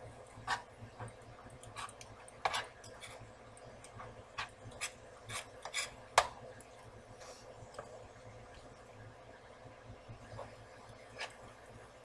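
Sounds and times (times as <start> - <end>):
spoon scraping a skillet: 0.4 - 0.7, 1.6 - 6.3, 10.4 - 11.6.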